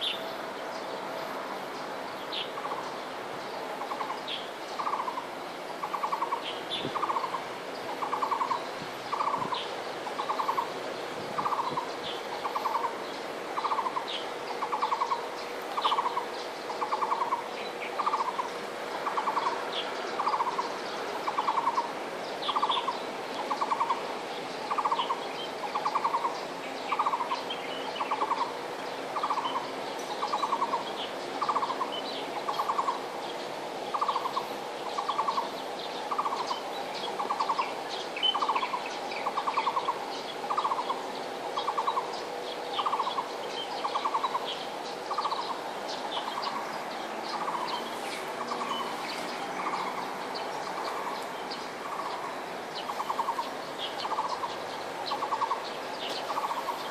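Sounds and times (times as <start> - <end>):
bird calling pulsed notes: 13.6 - 28.5, 29.2 - 56.9.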